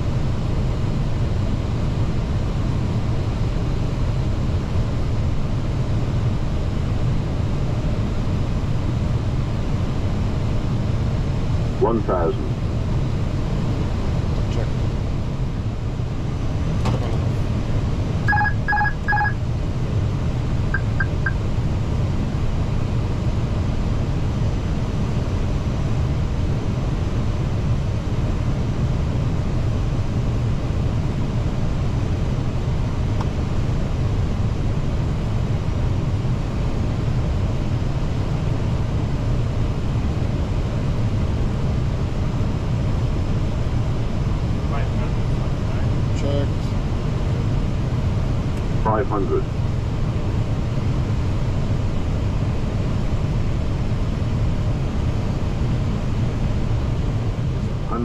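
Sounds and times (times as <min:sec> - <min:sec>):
airflow and engine rumble: 0:00.0 - 0:58.0
short electronic beeps: 0:18.3 - 0:19.4, 0:20.8 - 0:21.4.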